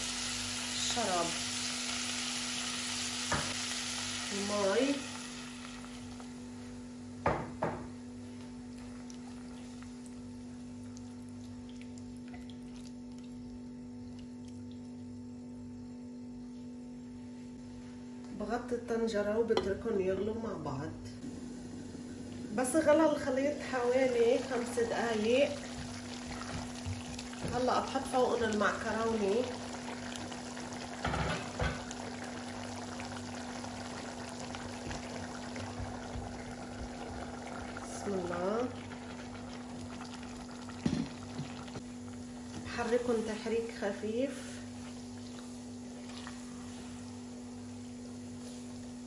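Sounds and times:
sauce bubbling in a pot: 0.0s - 15.4s, 21.2s - 49.0s
low steady hum: 0.0s - 49.0s.

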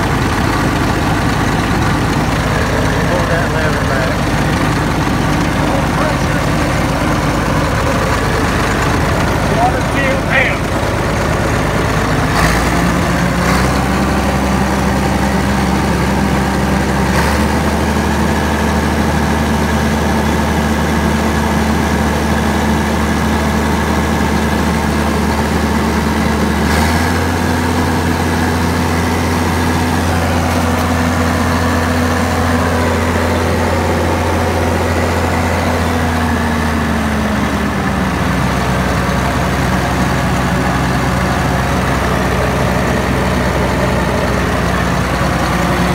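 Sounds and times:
diesel engine running: 0.0s - 45.9s.

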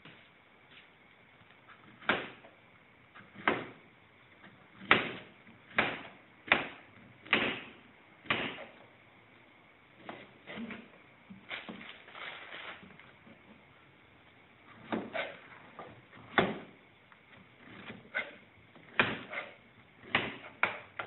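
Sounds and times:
knife cutting on plastic board: 17.6s - 20.8s.

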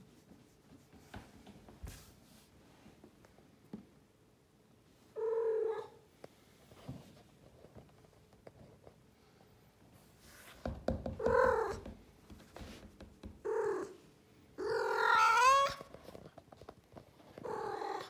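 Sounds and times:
cat meowing: 14.6s - 15.9s.

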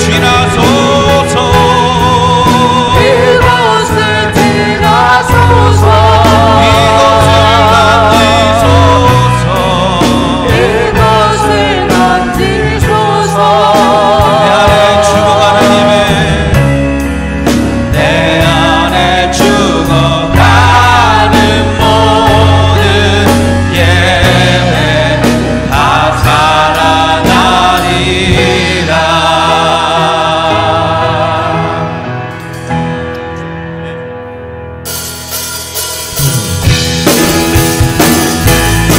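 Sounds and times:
man singing into microphone: 0.0s - 16.7s, 18.0s - 31.9s
band with drums and bass: 0.0s - 33.4s, 34.7s - 38.9s.

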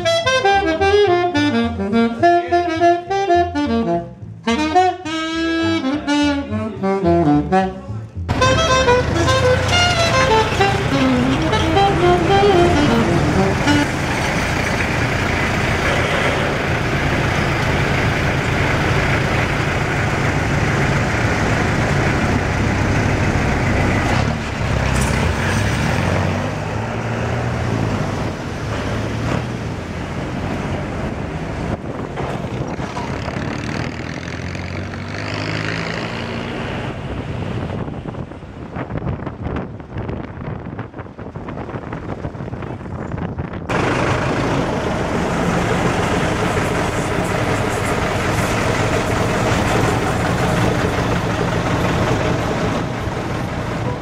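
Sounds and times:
road and tyre noise: 0.0s - 54.0s
car engine running: 43.7s - 54.0s.

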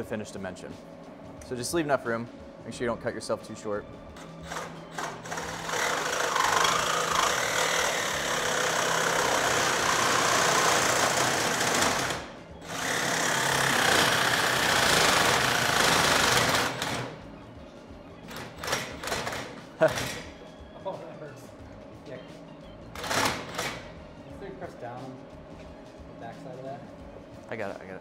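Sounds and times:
reciprocating saw cutting metal: 4.2s - 17.2s.

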